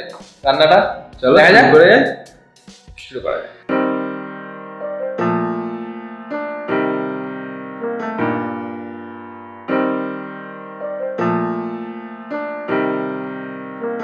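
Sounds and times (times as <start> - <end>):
slow piano chords: 3.3 - 14.0.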